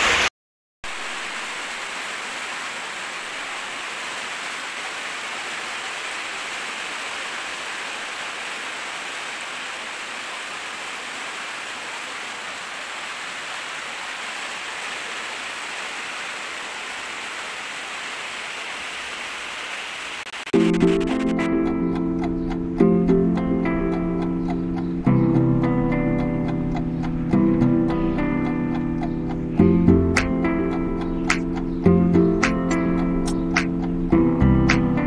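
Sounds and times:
steady rain hiss: 0.0s - 21.5s.

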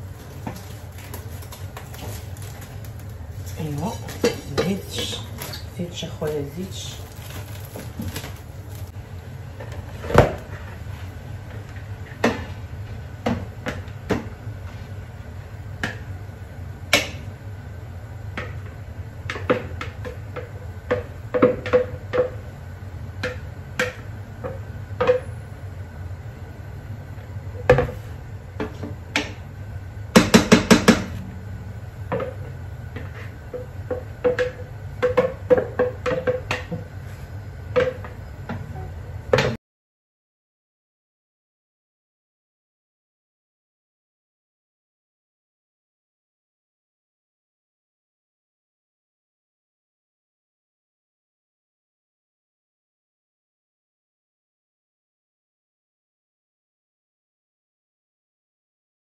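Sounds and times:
low hum: 31.0s - 35.0s.

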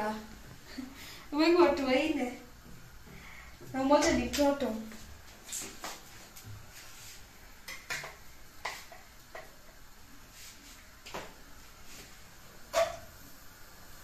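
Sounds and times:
cookware and utensils clinking: 12.7s - 13.1s.

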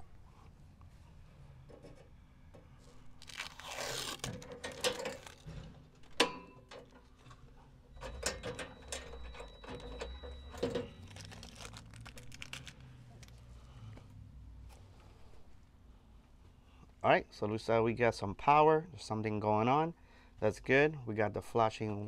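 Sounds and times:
rustling and handling noises: 0.2s - 8.2s, 8.8s - 15.7s.

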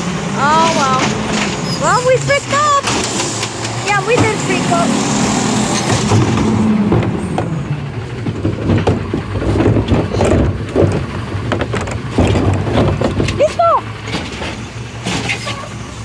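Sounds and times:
garbage truck diesel engine: 0.0s - 16.0s
hydraulic lift arm working: 0.0s - 16.0s
metallic clanks and knocks: 5.5s - 15.8s.

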